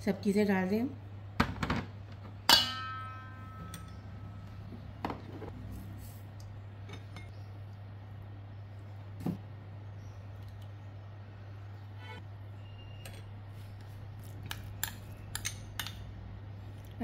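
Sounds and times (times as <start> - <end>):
glass bowls clinking on steel bowl: 2.5 - 4.0.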